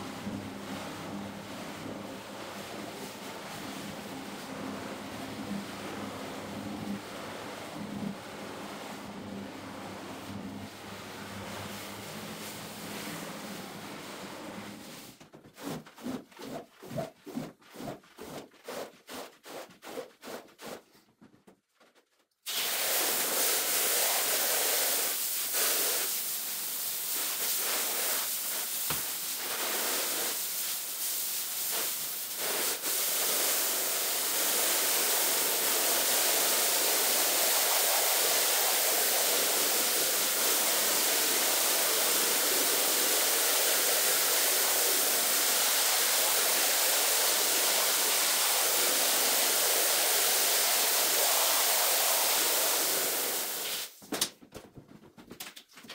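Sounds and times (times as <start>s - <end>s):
rubbing strokes: 15.1s - 21.1s
pressure washer spraying water: 22.5s - 53.9s.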